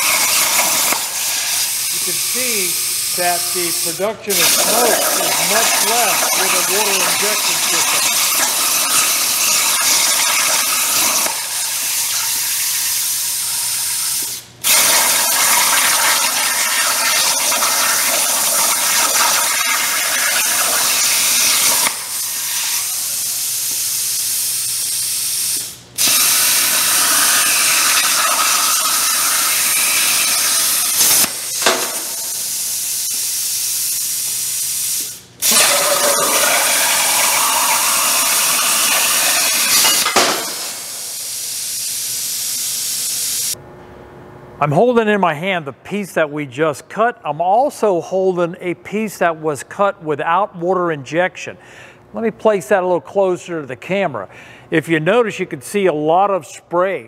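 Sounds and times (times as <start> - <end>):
plasma torch hissing: 0.0 - 43.6.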